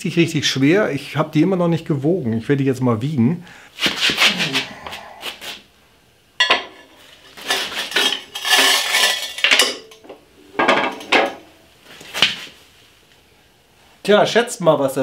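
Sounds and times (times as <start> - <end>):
loose metal parts rattling: 6.4 - 11.5.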